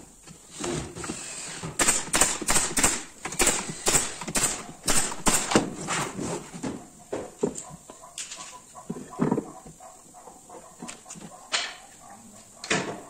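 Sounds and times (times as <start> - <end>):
nail gun firing into wood: 1.7 - 5.8.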